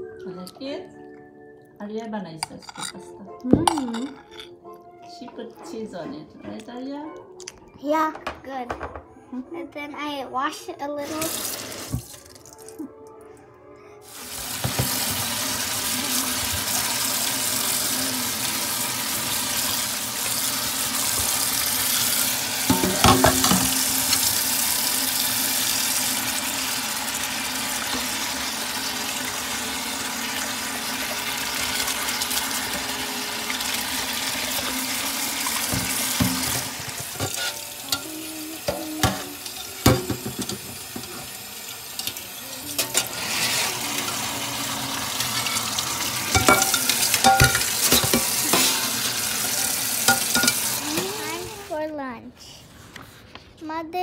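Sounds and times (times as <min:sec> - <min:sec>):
dishware knocking against sink: 0:08.1 - 0:09.1, 0:14.6 - 0:15.0, 0:22.7 - 0:24.2, 0:35.7 - 0:37.4, 0:39.8 - 0:41.2, 0:46.3 - 0:48.8, 0:50.1 - 0:50.7
tap water running into sink: 0:11.1 - 0:12.8, 0:14.1 - 0:51.7.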